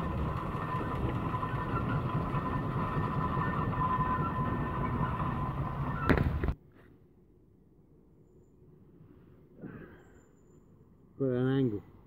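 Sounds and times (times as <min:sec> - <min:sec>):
steam engine rumbling: 0:00.0 - 0:06.6.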